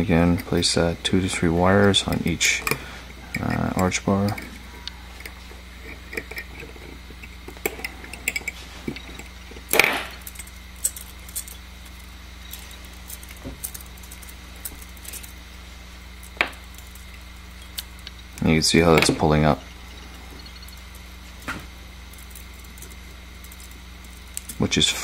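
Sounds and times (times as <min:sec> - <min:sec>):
small metal clicks and clinks: 0:01.3 - 0:15.4, 0:22.1 - 0:24.6.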